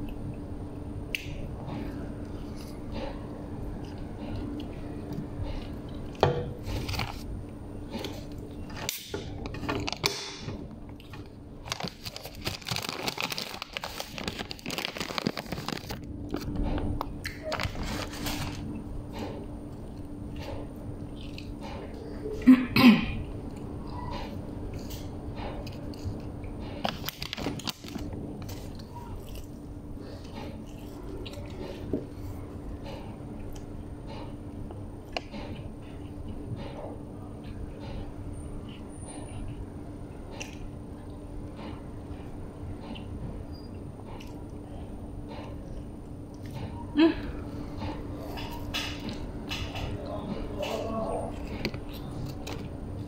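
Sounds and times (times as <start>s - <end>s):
crunching and crinkling: 1.2s - 7.3s, 7.9s - 22.1s, 24.2s - 38.0s, 47.6s - 53.0s
biting and chewing food: 7.9s - 22.0s, 23.3s - 38.8s, 47.7s - 53.0s.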